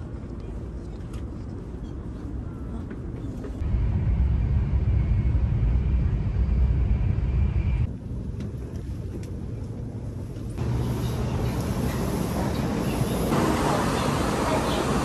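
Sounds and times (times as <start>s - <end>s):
train rumble inside passenger car: 0.0s - 15.0s.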